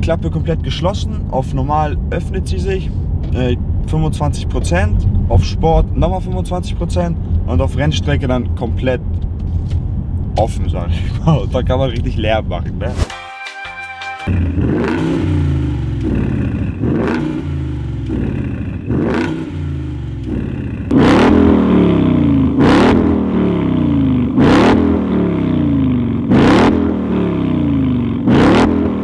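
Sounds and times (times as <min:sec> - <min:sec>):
car engine revving: 0:14.3 - 0:29.0.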